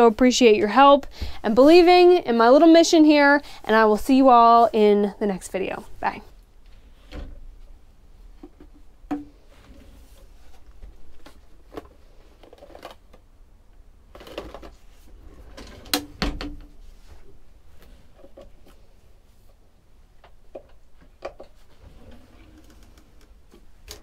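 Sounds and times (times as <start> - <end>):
drawers sliding open and shut: 9.4 - 13.0, 14.2 - 17.0, 21.4 - 24.0.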